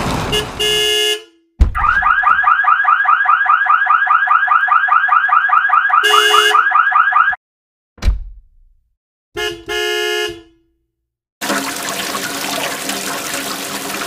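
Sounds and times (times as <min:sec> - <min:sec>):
thump: 0:01.6 - 0:02.1, 0:08.0 - 0:08.8
car alarm warble: 0:01.8 - 0:07.4
short horn beep: 0:06.0 - 0:06.6.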